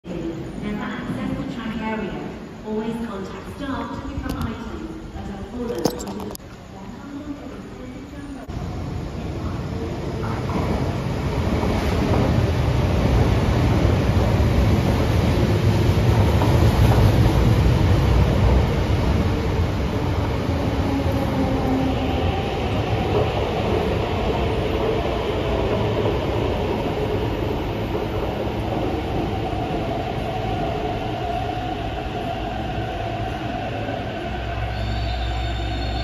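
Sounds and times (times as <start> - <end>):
train wheels rumbling on rails: 8.4 - 36.0
train decelerating whine: 13.4 - 36.0.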